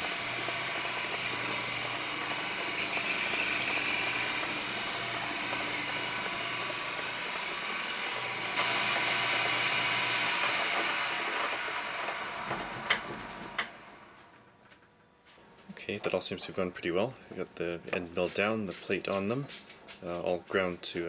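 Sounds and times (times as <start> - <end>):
hissing cutting noise: 0.0 - 13.0
motor hum: 0.0 - 14.9.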